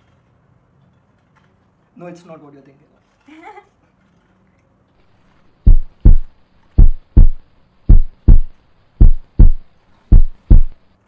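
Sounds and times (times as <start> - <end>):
heartbeat thumps: 5.6 - 10.8.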